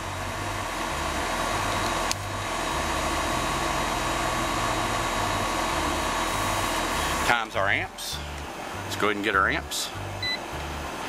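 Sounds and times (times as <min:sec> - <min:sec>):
air conditioner unit running: 0:00.0 - 0:11.0.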